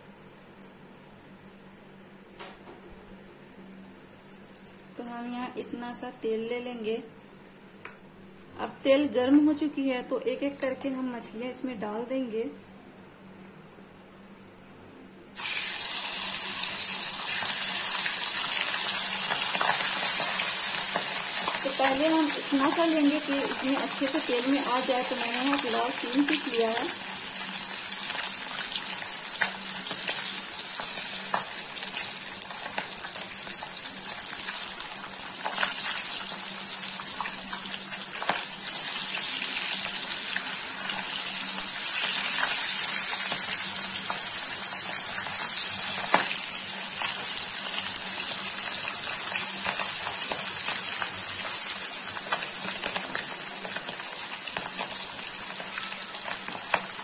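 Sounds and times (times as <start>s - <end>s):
fish sizzling in oil: 15.4s - 57.0s.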